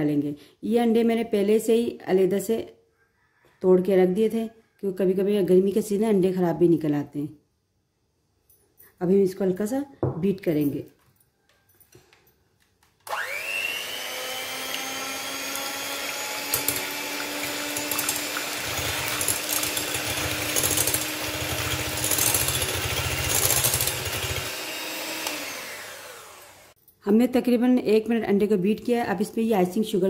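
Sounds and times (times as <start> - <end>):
electric hand mixer whirring: 13.1 - 26.8.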